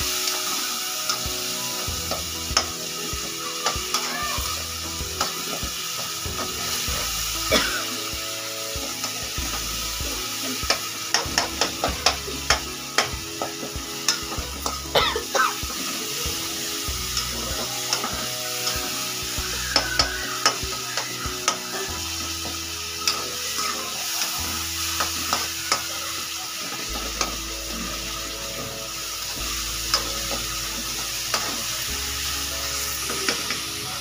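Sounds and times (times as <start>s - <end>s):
masala sizzling in pan: 0.0s - 34.0s.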